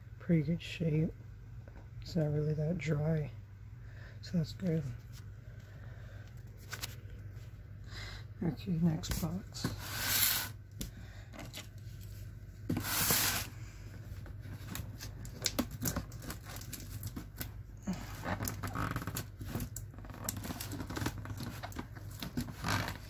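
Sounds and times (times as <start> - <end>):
cardboard scraping and rustling: 9.1 - 10.6, 11.4 - 17.4, 18.0 - 23.0
packing tape ripping: 14.7 - 23.0.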